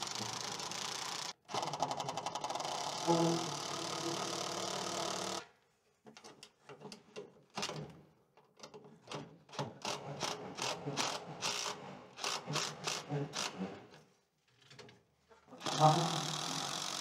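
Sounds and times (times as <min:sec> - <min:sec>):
cordless drill driving a screw: 0:00.0 - 0:01.9, 0:02.6 - 0:05.5, 0:09.8 - 0:13.8, 0:15.6 - 0:17.0.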